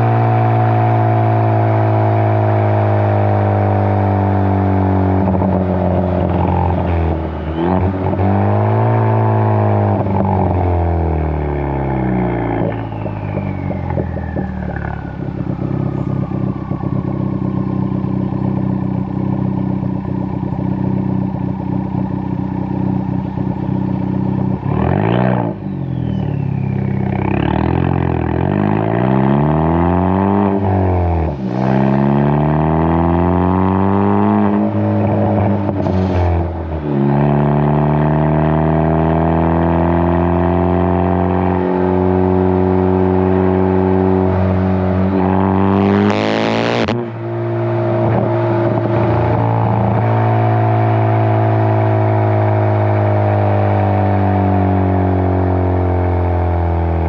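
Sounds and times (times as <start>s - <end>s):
car exhaust accelerating: 0.0s - 57.0s.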